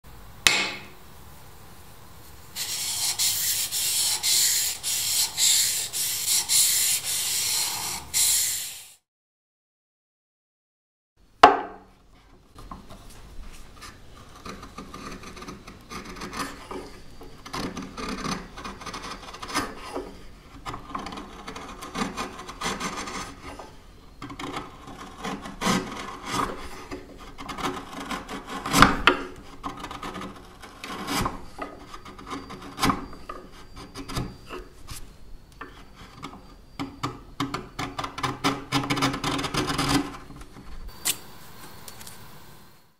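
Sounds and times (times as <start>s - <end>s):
chisel scraping on sharpening stone: 2.6s - 8.8s, 29.4s - 34.7s
single click: 41.0s - 42.2s.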